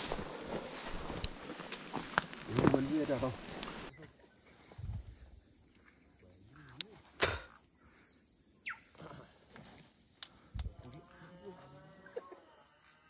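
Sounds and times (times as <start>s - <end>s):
footsteps through dry grass: 0.0s - 3.9s
twigs snapping: 0.0s - 3.9s, 10.2s - 11.0s.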